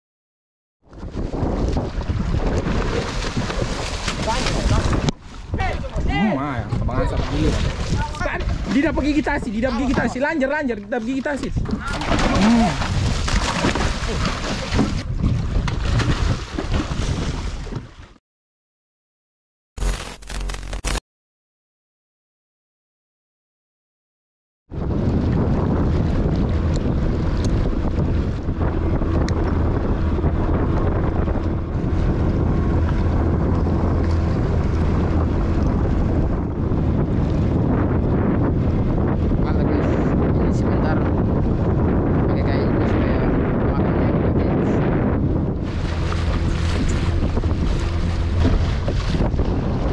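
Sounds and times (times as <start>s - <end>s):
water rushing along hull: 0.8s - 18.2s, 24.7s - 49.9s
wind buffeting microphone: 0.9s - 18.0s, 24.7s - 49.9s
fish thrashing and splashing: 1.8s - 5.1s, 11.6s - 17.7s
boat motor humming: 24.8s - 42.3s, 42.9s - 49.9s.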